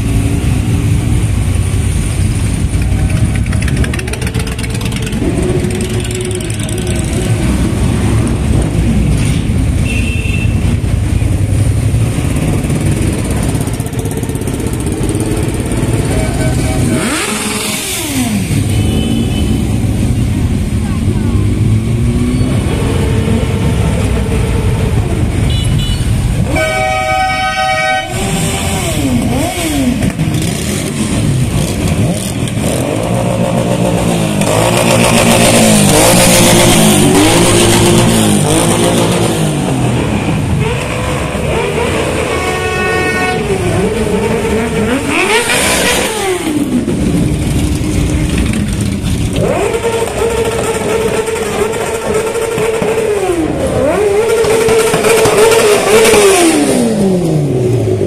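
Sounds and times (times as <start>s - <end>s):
motorcycles riding past: 0.0s - 9.8s, 10.6s - 58.0s
horn blast: 25.4s - 29.5s, 40.6s - 46.0s.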